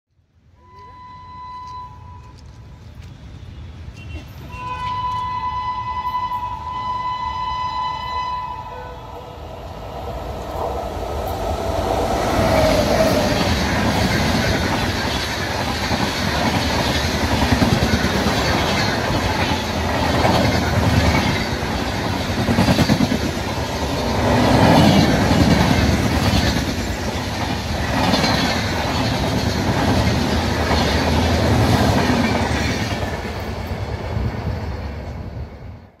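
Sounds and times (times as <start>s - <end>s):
express train passing: 0.4s - 36.0s
train horn blast: 0.6s - 2.4s, 4.0s - 9.4s.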